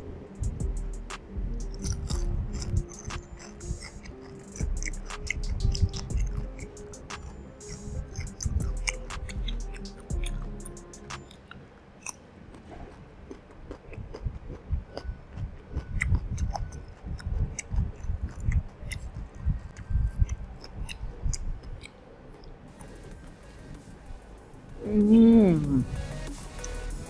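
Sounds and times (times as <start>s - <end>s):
chewing crunchy food: 1.7s - 10.5s, 11.2s - 23.0s.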